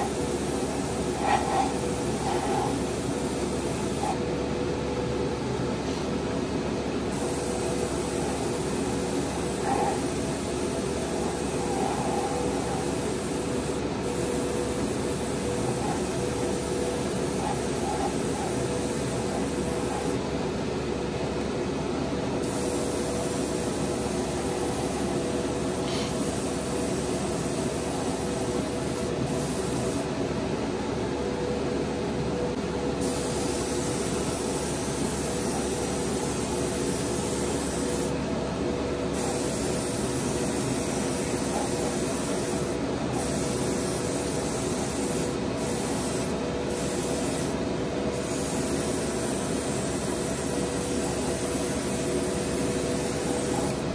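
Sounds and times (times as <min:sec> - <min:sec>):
airbrush spraying hiss: 0:00.0 - 0:04.2, 0:07.1 - 0:20.2, 0:22.4 - 0:30.1, 0:33.0 - 0:38.1, 0:39.1 - 0:53.9.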